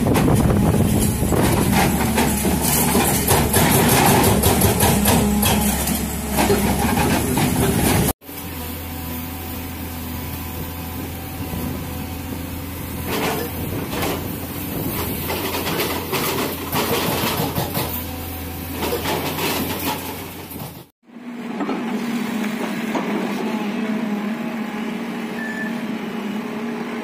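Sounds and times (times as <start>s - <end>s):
excavator diesel engine humming: 0.0s - 27.0s
bucket clattering in rocky soil: 0.1s - 8.1s, 18.8s - 20.9s.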